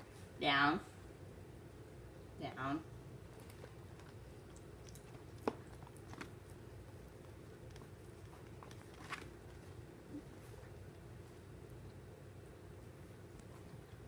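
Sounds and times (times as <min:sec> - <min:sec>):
dog chewing food: 0:03.1 - 0:14.0.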